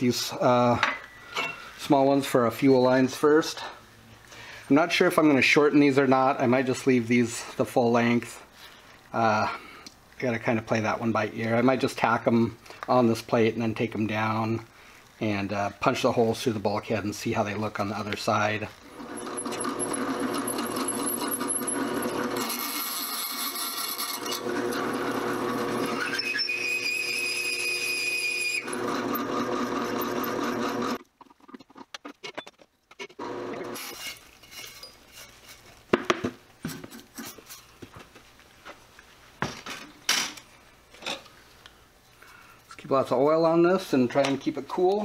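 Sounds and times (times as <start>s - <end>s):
drill press cutting metal: 18.9s - 31.0s, 33.2s - 34.2s.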